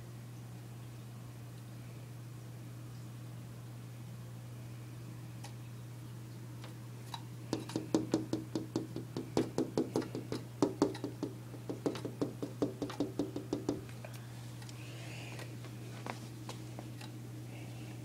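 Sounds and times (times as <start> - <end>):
bird pecking on glass: 7.6 - 13.8.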